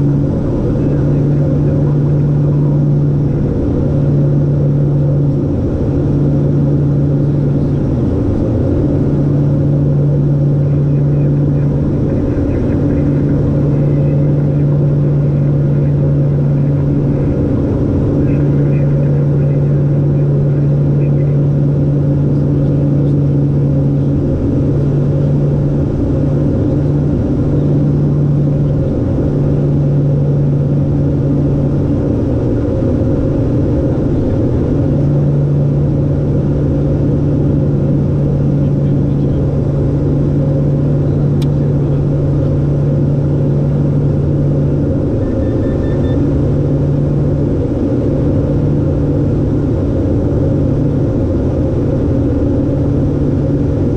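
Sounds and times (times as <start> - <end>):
turboprop engines droning: 0.0 - 53.9.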